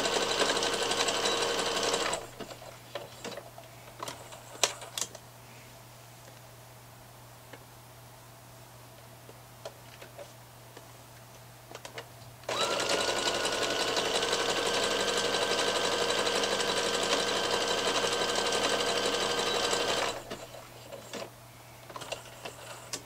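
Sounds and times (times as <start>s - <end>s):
sewing machine whirring: 0.0s - 3.4s, 12.5s - 21.2s.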